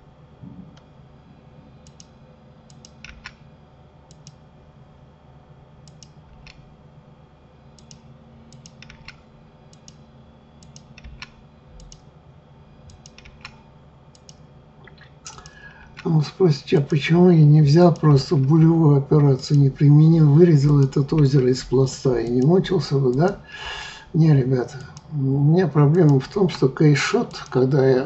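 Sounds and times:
low steady hum: 0.0s - 28.0s
mouse and keyboard clicks: 7.8s - 9.2s, 12.9s - 13.6s.

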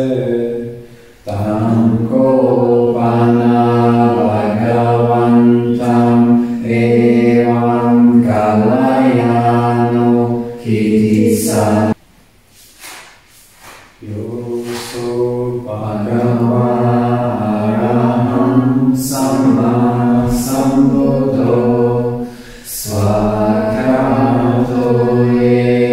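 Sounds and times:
group chanting: 0.0s - 12.0s, 14.0s - 25.9s
breaths: 0.8s - 1.3s, 22.2s - 22.8s.

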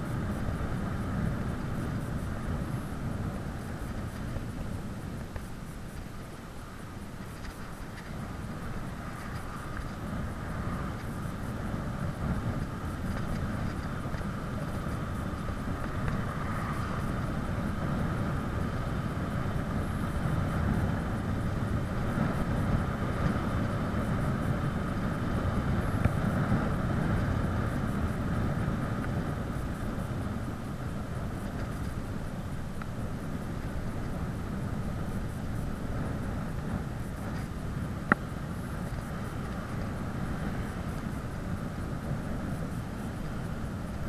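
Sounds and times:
bicycle tyre road noise: 0.0s - 44.0s
wind rushing over microphone: 0.0s - 44.0s.

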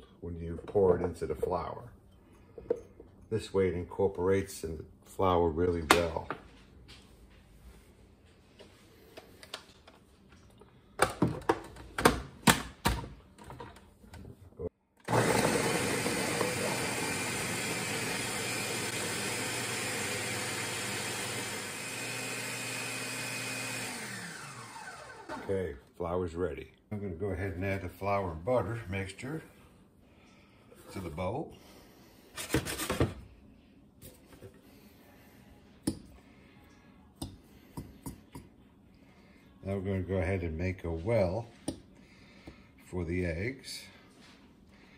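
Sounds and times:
blender motor whirring: 15.0s - 25.5s.

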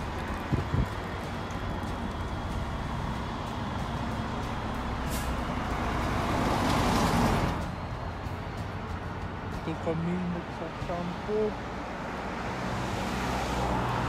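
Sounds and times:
vehicle passing close by: 0.0s - 7.8s, 10.7s - 14.0s
road traffic noise: 0.0s - 14.0s
brief hiss: 5.1s - 5.4s.

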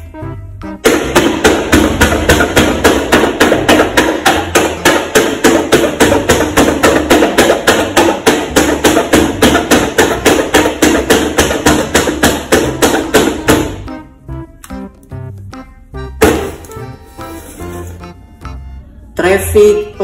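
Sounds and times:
rapid sharp tapping: 0.8s - 13.8s.

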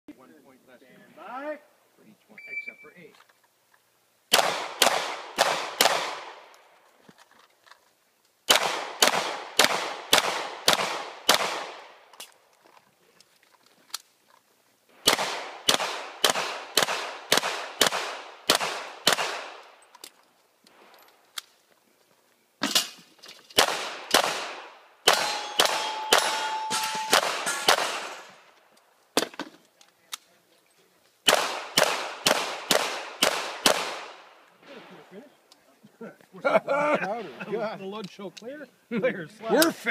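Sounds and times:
handgun shots: 4.3s - 6.3s, 8.5s - 11.8s, 15.0s - 19.5s, 23.6s - 28.3s, 31.3s - 34.1s
metallic ring of steel target: 25.1s - 27.8s.

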